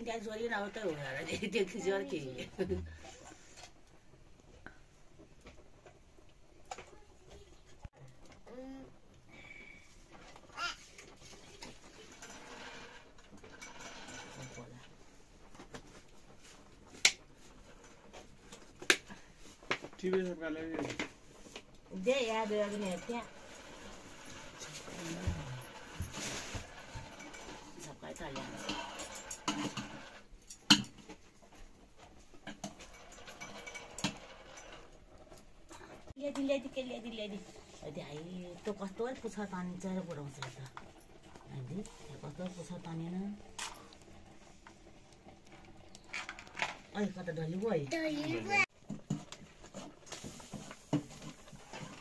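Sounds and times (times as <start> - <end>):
metal utensils clinking on a pot: 26.9 - 31.2, 32.4 - 34.8.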